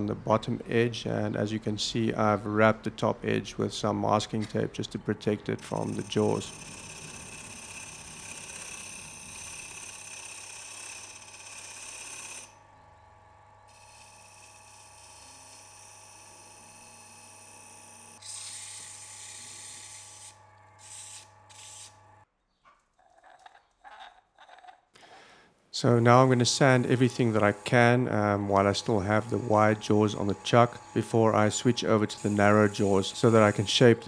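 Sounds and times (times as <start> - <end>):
lathe motor hum: 5.6 - 22.2, 25.8 - 34.0
gouge hissing on spinning wood: 29.1 - 34.0.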